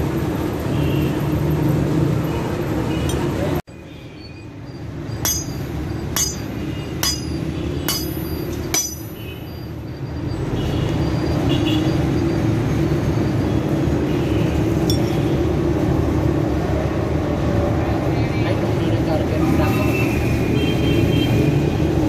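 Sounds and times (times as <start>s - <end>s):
iron rod clinking on anvil: 5.2s - 9.6s, 14.8s - 15.2s.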